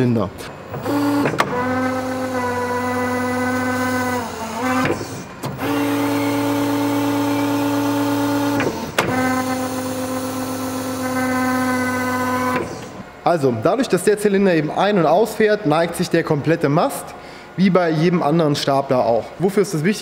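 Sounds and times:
hydraulic pump motor whine: 0.5 - 13.2.

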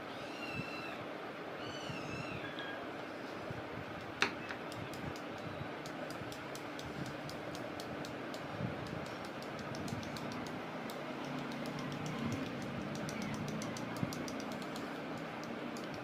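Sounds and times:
paintbrush handles clicking: 4.7 - 16.0.

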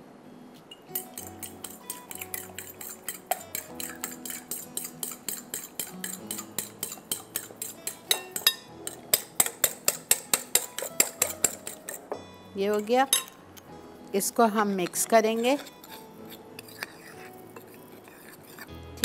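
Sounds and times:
whisk clinking against glass bowl: 1.0 - 12.1, 14.8 - 18.7.

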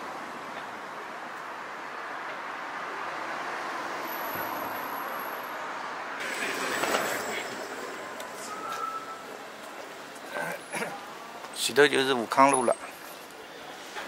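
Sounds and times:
hiss of passing vehicles: 0.0 - 11.4, 12.9 - 14.0.

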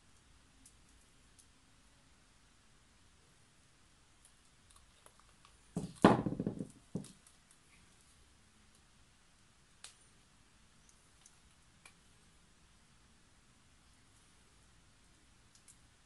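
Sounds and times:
canvas knocking and rustling: 5.7 - 7.1.

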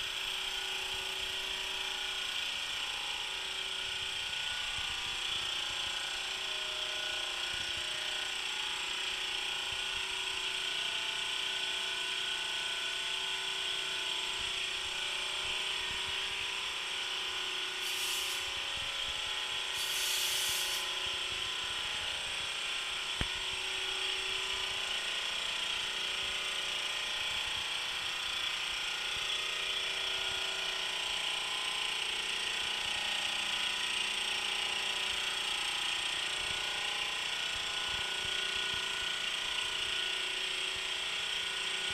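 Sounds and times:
air compressor humming: 17.7 - 21.8
valve click: 17.8 - 18.5, 19.8 - 20.9
short sharp valve hisses: 17.8 - 18.6, 19.8 - 20.9.

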